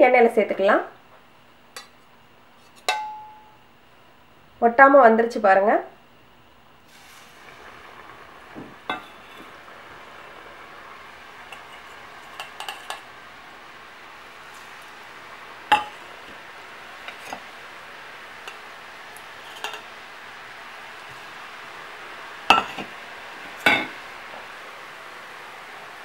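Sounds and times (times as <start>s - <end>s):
deep-frying sizzle in hot oil: 6.8s - 26.0s
metal utensils clinking on pan: 11.5s - 13.1s, 15.7s - 16.0s, 19.4s - 19.9s, 22.5s - 22.9s, 23.6s - 24.0s.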